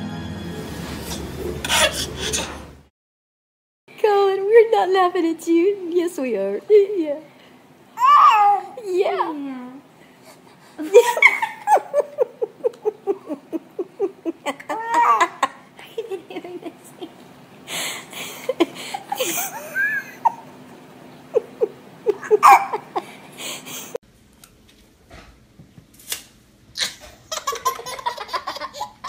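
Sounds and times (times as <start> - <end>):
baby laughing: 1.4 - 2.6, 8.0 - 8.8, 10.8 - 17.1, 21.3 - 23.2, 26.8 - 29.0
people laughing: 10.8 - 17.2, 18.2 - 20.4, 21.3 - 23.2.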